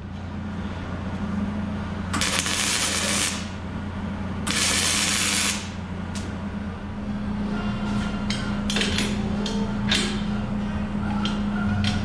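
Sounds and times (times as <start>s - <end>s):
steady low hum: 0.0s - 12.0s
welding arc crackling and hissing: 2.1s - 3.6s, 4.5s - 5.8s.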